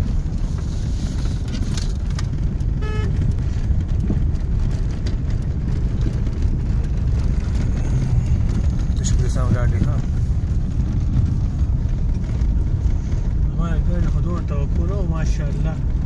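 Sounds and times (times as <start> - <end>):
car cabin road rumble: 0.0 - 16.0
short pitched beep: 2.8 - 3.1.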